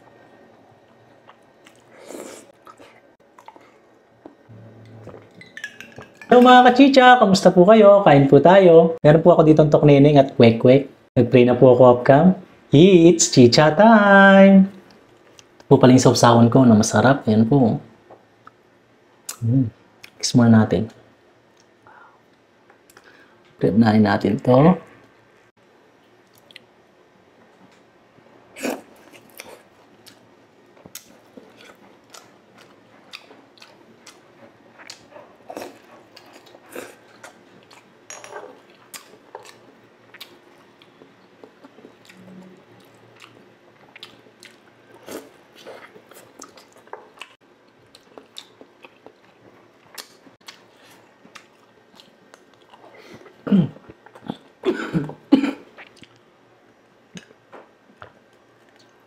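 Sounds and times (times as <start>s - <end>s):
close chewing with mouth clicks: 0.8s - 4.4s, 28.6s - 54.6s, 55.7s - 56.2s.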